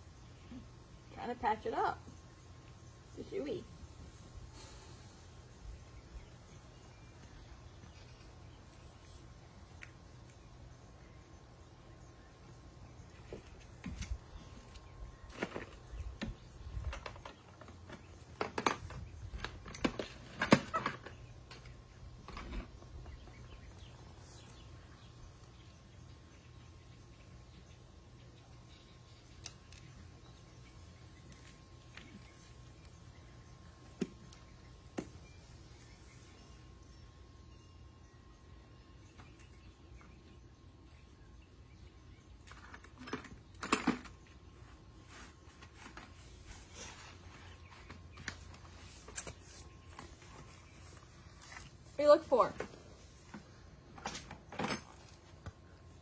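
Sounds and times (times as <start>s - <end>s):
tools and chain clattering in toolbox: 42.5s - 44.2s.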